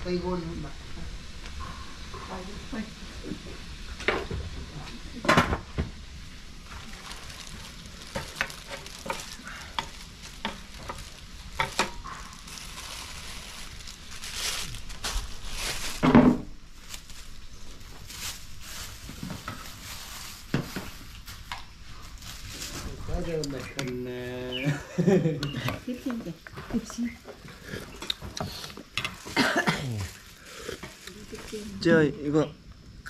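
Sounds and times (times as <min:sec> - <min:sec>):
food sizzling in a pan: 0:00.0 - 0:21.5
utensils clinking against a pan: 0:08.1 - 0:12.2.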